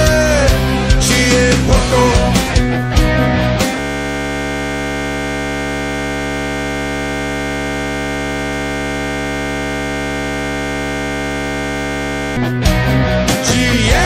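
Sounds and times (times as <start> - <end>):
steady electronic buzz: 3.2 - 12.6.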